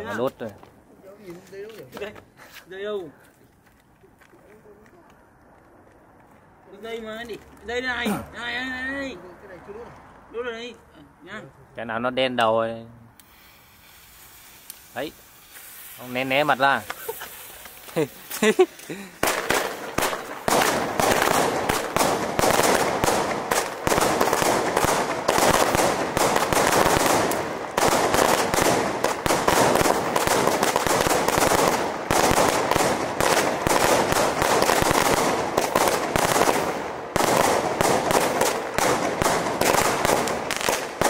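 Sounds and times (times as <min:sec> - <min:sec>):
fireworks volley and crackling bursts: 0:13.2 - 0:41.0.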